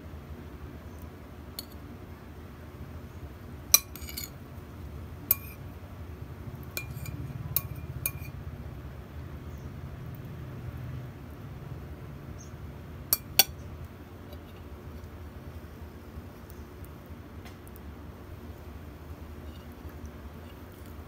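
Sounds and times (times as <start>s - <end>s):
low steady hum: 0.0s - 21.0s
metal spoon clinking on ceramic: 3.8s - 4.3s, 5.3s - 5.6s, 6.8s - 8.3s, 13.1s - 13.6s.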